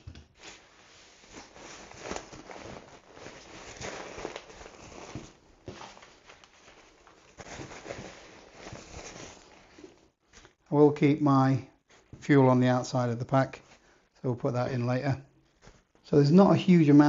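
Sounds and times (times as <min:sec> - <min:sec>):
nylon fabric rustling: 0:00.4 - 0:10.6.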